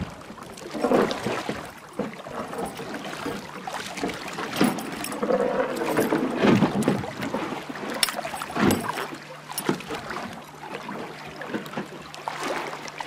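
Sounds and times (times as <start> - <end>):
water splashing against boat hull: 0.0 - 13.0.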